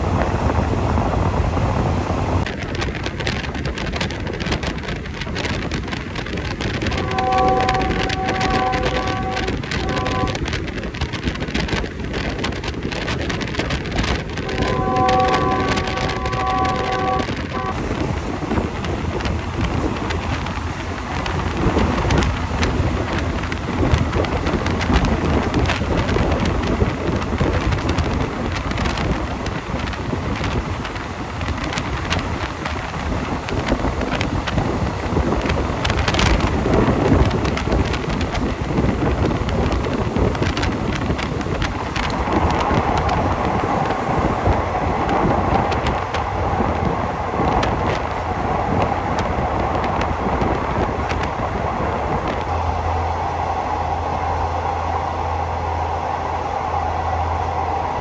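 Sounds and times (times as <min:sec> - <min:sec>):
train wheels rumbling on rails: 0:00.0 - 0:58.0
wind buffeting microphone: 0:00.0 - 0:58.0
steady higher hum: 0:52.5 - 0:58.0.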